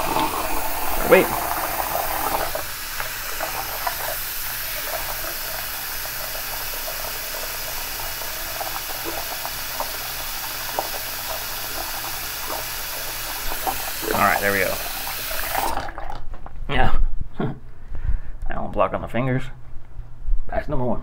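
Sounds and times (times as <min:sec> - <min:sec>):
water running from sink tap: 0:00.0 - 0:16.1.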